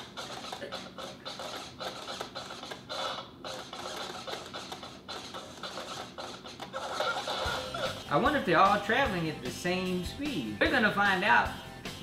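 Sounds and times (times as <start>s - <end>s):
thin choppy beat from toy speaker: 0.0s - 10.2s.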